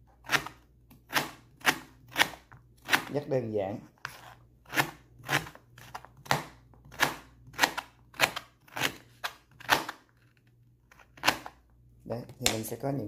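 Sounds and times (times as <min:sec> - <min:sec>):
knife chopping on cutting board: 0:00.2 - 0:03.2, 0:04.1 - 0:10.0.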